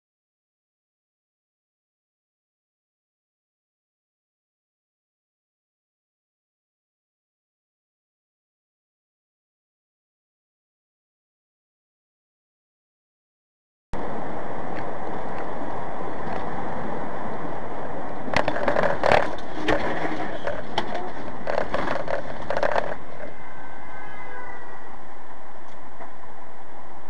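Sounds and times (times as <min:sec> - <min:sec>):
truck cab road noise rumble: 0:14.0 - 0:27.0
clatter and knocking: 0:18.3 - 0:23.3.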